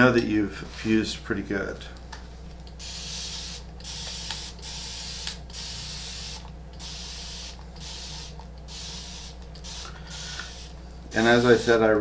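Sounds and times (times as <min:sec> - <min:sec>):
spray bottle misting: 0:02.8 - 0:12.0.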